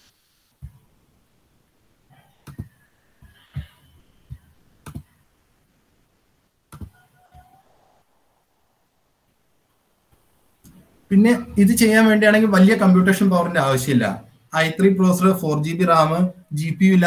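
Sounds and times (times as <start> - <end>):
mouse clicks and knocks: 2.4 - 3.7, 4.3 - 5.2, 6.7 - 7.5.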